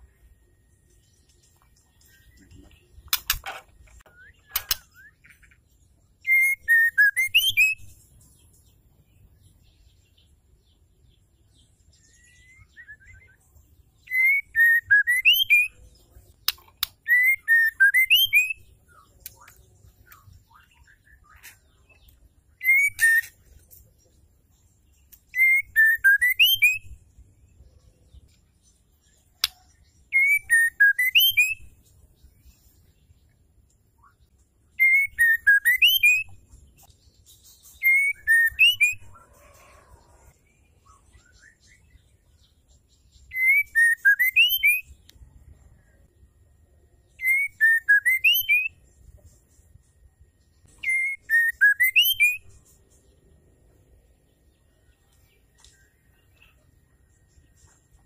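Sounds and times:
sharp clicks: 3.0s - 4.9s, 16.4s - 17.0s
bird singing whistled phrases: 6.2s - 7.9s, 12.1s - 13.4s, 14.0s - 15.8s, 17.0s - 21.5s, 22.6s - 23.4s, 25.3s - 27.0s, 29.4s - 31.7s, 34.8s - 36.4s, 37.6s - 39.2s, 43.3s - 45.0s, 47.2s - 48.8s, 50.7s - 52.6s.

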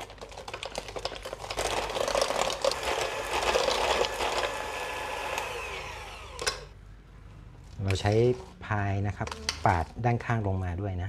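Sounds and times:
electric hand mixer whine: 2.6s - 6.7s.

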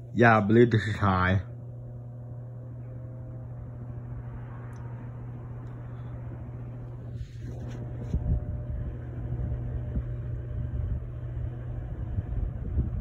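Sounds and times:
ceiling fan motor hum: 0.0s - 13.0s
air buffeting microphone: 5.5s - 13.0s.

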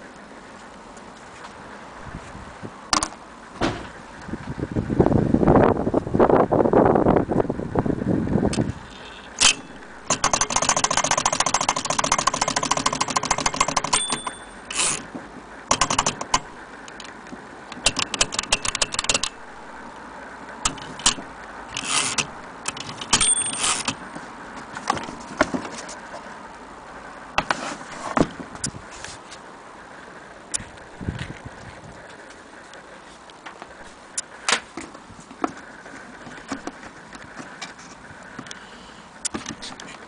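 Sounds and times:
typewriter clicking and clacking: 9.4s - 14.4s, 15.7s - 16.5s, 17.8s - 19.4s
typewriter carriage bell ding: 9.4s - 14.6s, 23.1s - 23.9s.

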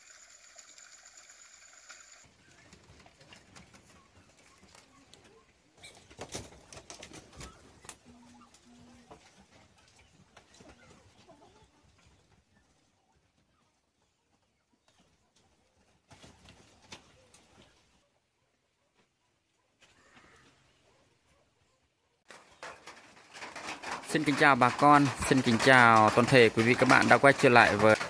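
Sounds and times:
rustling: 22.3s - 28.0s.

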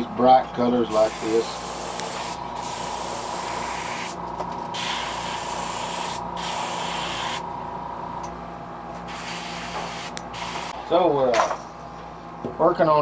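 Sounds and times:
steady hum: 0.0s - 13.0s
airbrush hissing: 0.9s - 4.2s, 4.8s - 7.4s, 9.1s - 10.8s.

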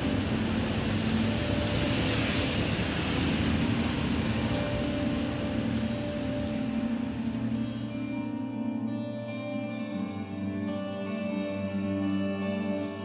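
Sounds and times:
tyres hissing on wet road: 0.0s - 8.2s
rain on a street: 0.0s - 13.0s.

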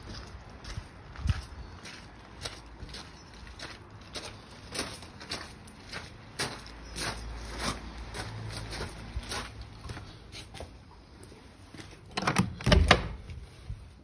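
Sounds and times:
footsteps walking: 0.0s - 12.0s
wooden door rattling open: 12.1s - 13.2s.

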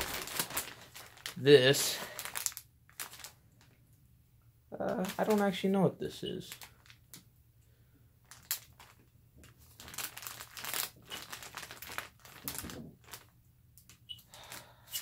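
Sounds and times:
plastic packaging crinkling: 0.0s - 3.8s, 4.8s - 5.6s, 6.4s - 7.2s, 8.2s - 15.0s.

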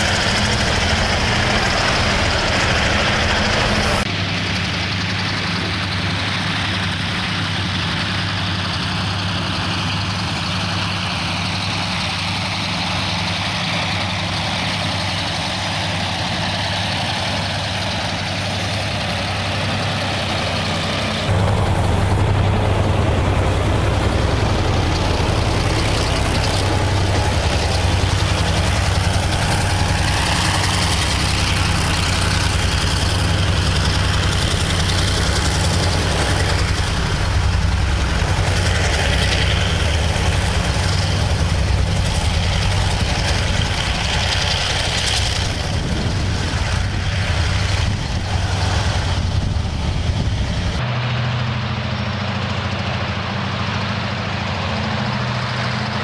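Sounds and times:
diesel engine running: 0.0s - 56.0s
train wagons rolling over rails: 0.0s - 56.0s.

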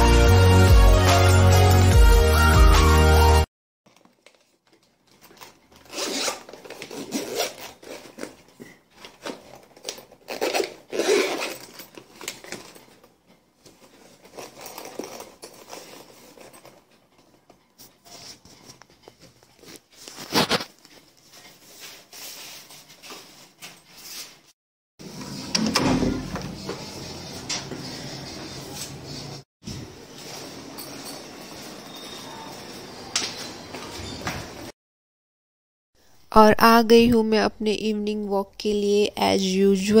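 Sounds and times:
bag rustling: 3.9s - 16.9s, 19.4s - 24.5s
zipper rasping: 5.8s - 8.4s, 9.9s - 11.9s.

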